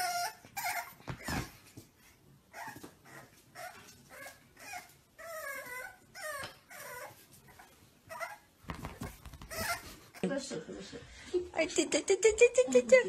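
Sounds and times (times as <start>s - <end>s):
puppy whining and yipping: 0.0s - 1.6s, 2.5s - 10.2s.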